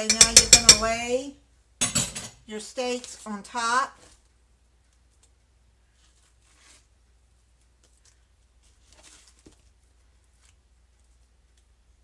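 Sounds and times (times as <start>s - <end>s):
soft rustles: 4.0s - 12.0s.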